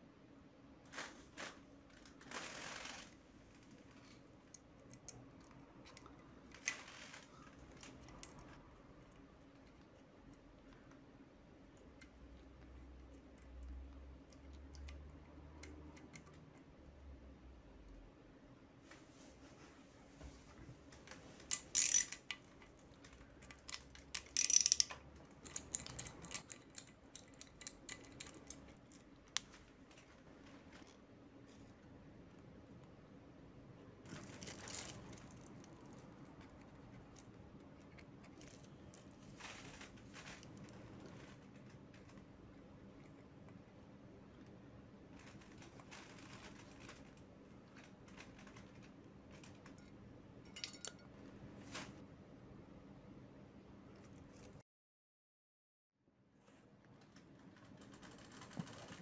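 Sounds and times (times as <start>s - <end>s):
small metal clicks: 21.4s - 29.6s, 45.2s - 51.1s.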